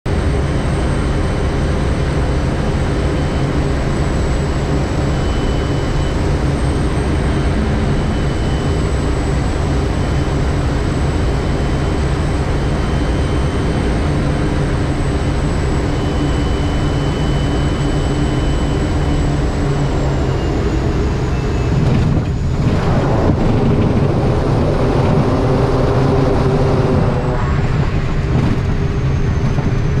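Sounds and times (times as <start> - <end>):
high turbine whine: 0.1 - 30.0
turboprop engine and propeller: 0.1 - 30.0
rushing air: 21.9 - 30.0.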